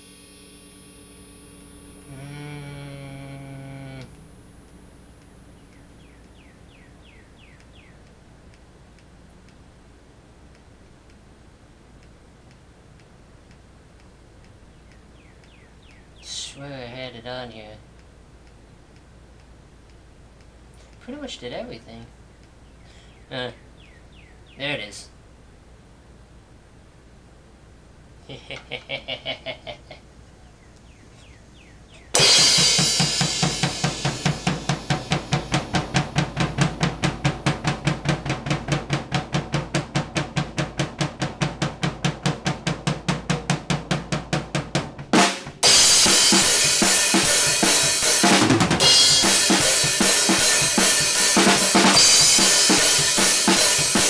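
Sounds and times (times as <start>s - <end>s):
cymbal crashes: 0.0s - 4.5s, 32.2s - 39.6s, 45.2s - 54.0s
drum kit beat: 2.0s - 4.1s, 32.1s - 54.0s.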